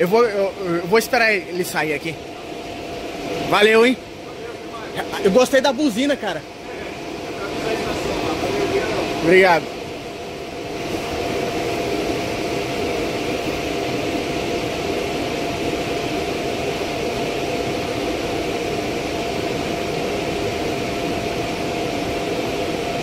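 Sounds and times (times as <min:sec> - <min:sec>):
steady whine: 0:00.0 - 0:23.0
train equipment whirring and humming: 0:00.0 - 0:23.0.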